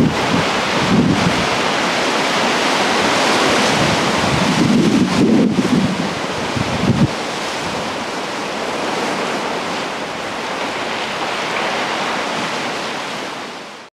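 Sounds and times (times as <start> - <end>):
wind rumble on microphone: 0.0 - 13.2
surf breaking against rocks: 0.0 - 13.5.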